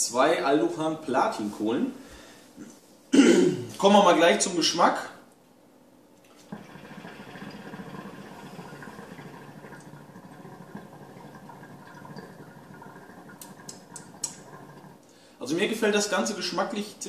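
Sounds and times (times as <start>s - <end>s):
hookah bubbling: 6.3s - 15.3s
water gurgling in glass base: 6.4s - 15.0s.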